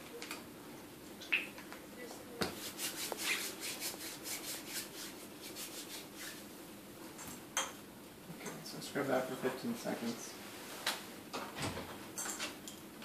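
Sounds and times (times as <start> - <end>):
hands rubbing together: 2.5 - 6.5.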